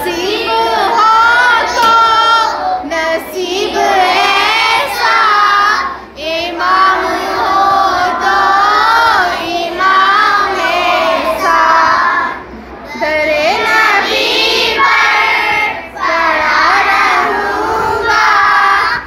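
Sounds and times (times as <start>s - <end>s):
boys singing devotional song: 0.0s - 19.0s.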